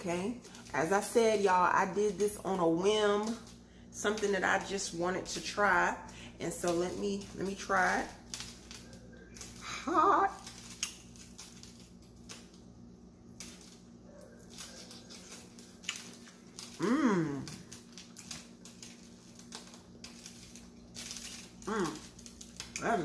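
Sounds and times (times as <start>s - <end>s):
steady low hum: 0.0s - 23.0s
person chewing: 13.4s - 23.0s.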